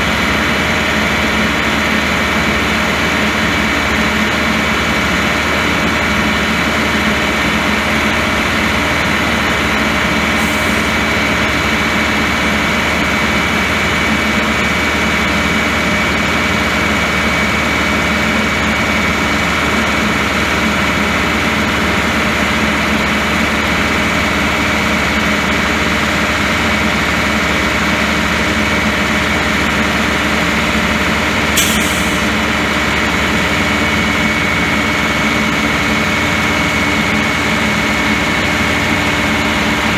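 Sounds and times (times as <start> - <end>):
diesel engine running: 0.0 - 39.9
sharp click: 31.6 - 32.3.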